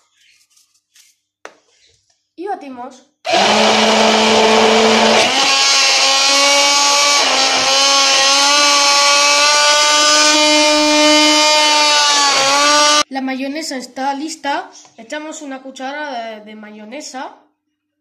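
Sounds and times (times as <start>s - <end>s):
immersion blender motor whine: 3.3s - 13.0s.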